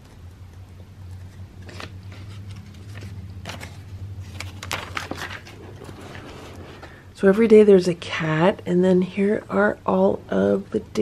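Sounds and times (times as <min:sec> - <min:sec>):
low steady hum: 0:00.0 - 0:11.0
paper pages rustling: 0:01.1 - 0:07.0.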